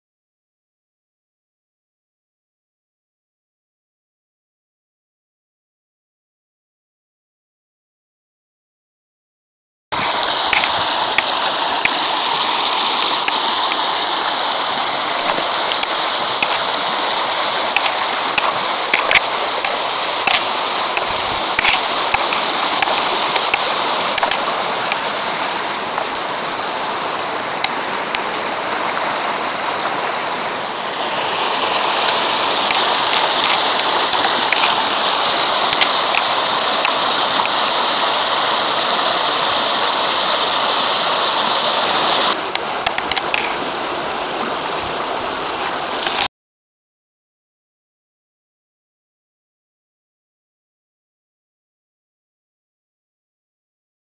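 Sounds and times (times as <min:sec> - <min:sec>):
creek rushing over stones: 0:09.9 - 0:46.3
sharp clicks: 0:42.6 - 0:43.5.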